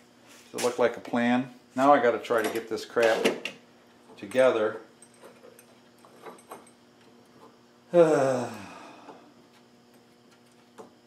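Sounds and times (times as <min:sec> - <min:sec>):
man sighing: 0:07.9 - 0:09.3.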